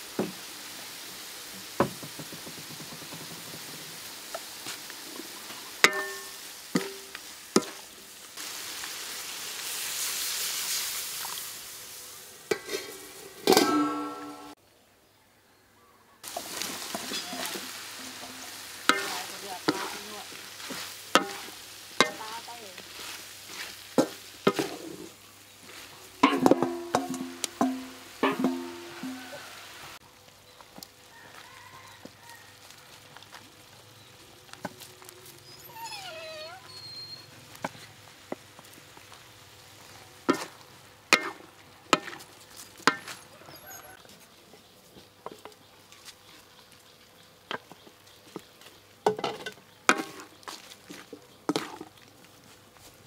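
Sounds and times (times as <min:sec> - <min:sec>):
faint sizzle: 0:00.0 - 0:53.0
spatula scraping a wok: 0:05.8 - 0:07.9, 0:12.5 - 0:14.4, 0:16.3 - 0:29.7, 0:39.8 - 0:43.9, 0:49.3 - 0:51.9.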